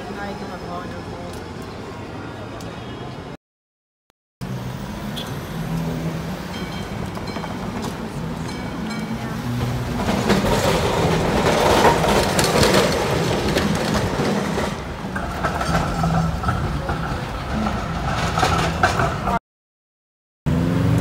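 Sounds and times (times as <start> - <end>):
tram wheels clicking over rail joints: 5.7 - 19.4.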